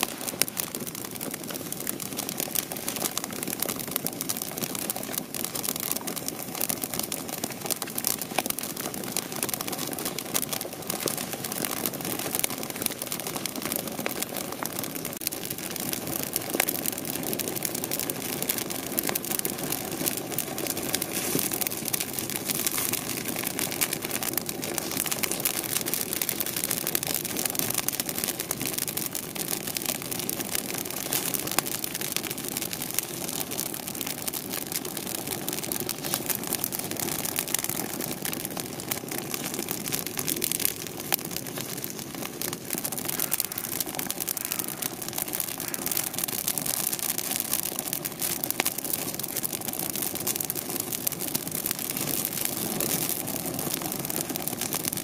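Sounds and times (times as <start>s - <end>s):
wood fire crackling and popping: 0.0s - 55.0s
rush of flame: 9.8s - 26.6s.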